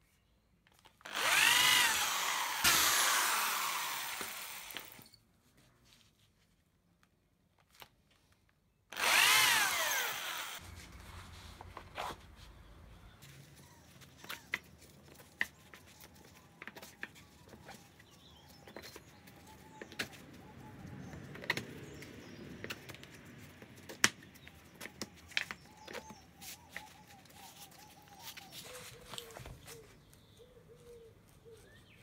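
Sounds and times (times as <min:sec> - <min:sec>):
bird calling: 0:24.4 - 0:32.0.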